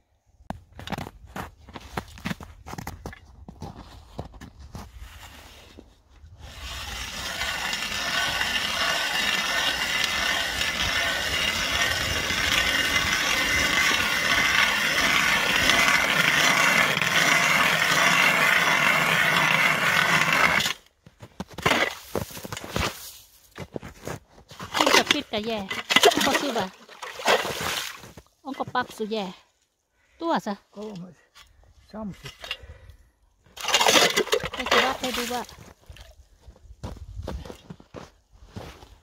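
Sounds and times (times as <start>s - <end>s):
ice auger scraping and grinding: 0.8s - 29.1s, 33.5s - 36.1s.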